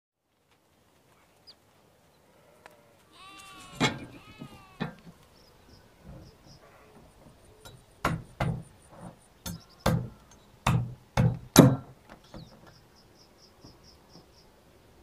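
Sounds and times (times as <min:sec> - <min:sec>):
cat meowing: 0:03.1 - 0:04.9.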